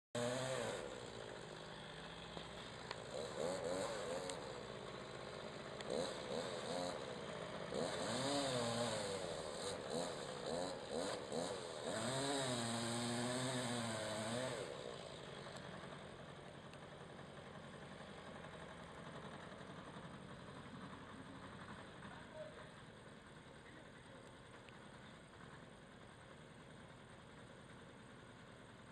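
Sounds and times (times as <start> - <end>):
chainsaw engine revving: 0.2 - 22.3.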